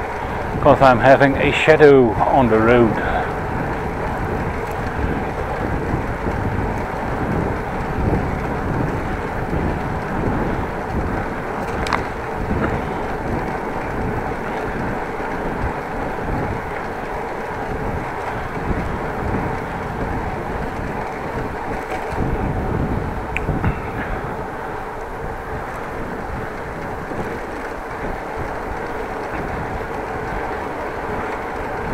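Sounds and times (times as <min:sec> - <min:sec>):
bicycle tyre rumble on road: 0:00.0 - 0:31.9
wind buffeting microphone: 0:00.0 - 0:31.9.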